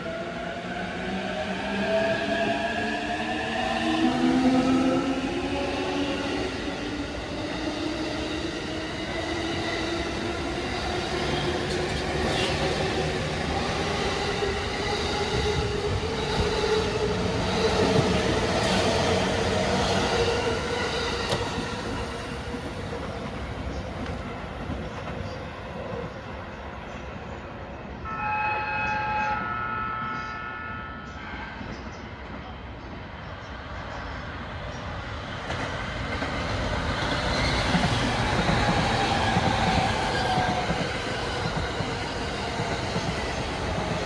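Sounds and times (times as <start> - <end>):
steady multi-tone ringing: 28.1 - 31.6.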